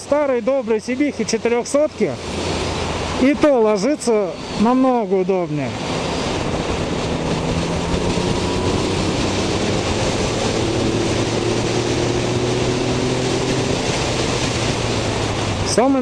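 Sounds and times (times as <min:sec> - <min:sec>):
wind rush on microphone: 0:01.3 - 0:16.0
motorcycle engine running: 0:05.8 - 0:16.0.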